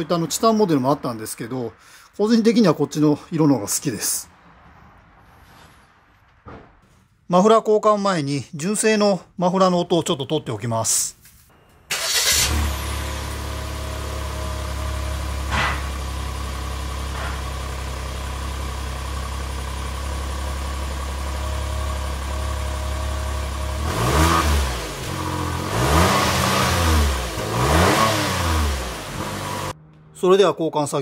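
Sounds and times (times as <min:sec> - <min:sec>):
car engine revving: 0:11.9 - 0:17.2, 0:20.1 - 0:30.2
car engine idling: 0:11.9 - 0:24.0.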